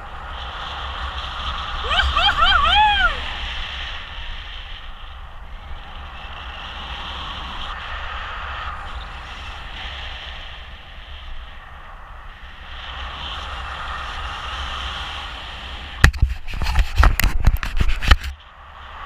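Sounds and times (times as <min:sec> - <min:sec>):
wind rushing over microphone: 0:00.0 - 0:19.0
camera handling knocks and scrapes: 0:16.0 - 0:18.3.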